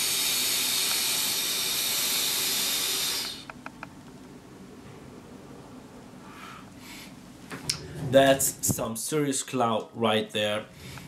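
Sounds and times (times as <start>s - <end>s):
air hissing through vape pen: 0.0s - 3.5s.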